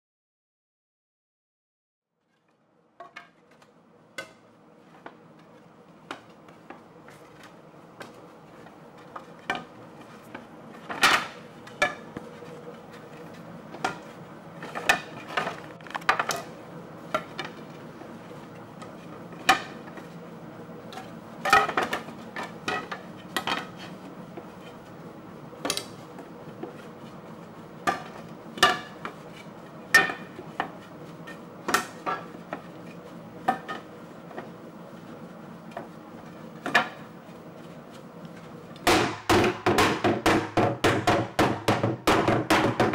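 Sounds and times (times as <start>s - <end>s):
wooden knocks of barrel staves: 38.8s - 42.9s.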